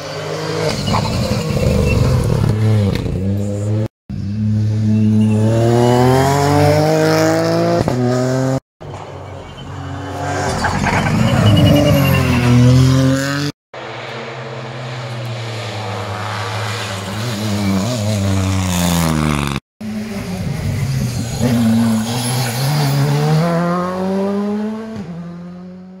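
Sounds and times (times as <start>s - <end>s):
rally car engines accelerating: 9.4s - 26.0s.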